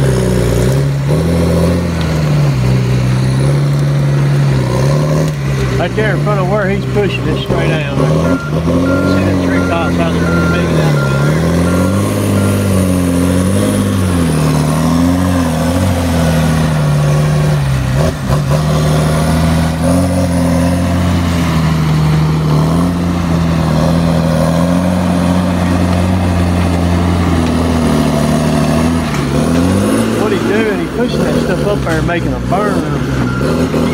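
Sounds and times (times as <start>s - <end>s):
diesel engine revving: 0.0s - 33.9s
reversing alarm beeping: 6.0s - 13.1s, 32.2s - 33.9s.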